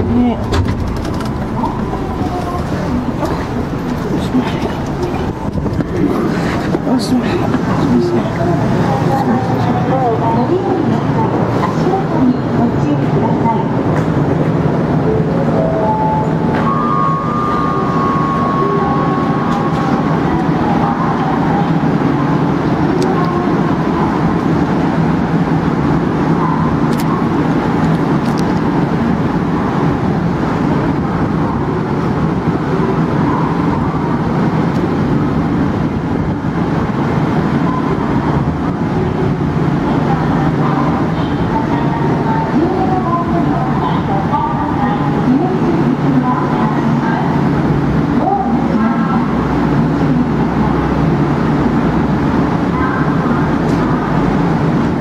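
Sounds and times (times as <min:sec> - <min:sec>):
low hum: 0:00.0 - 0:08.7
railway platform din: 0:00.0 - 0:55.0.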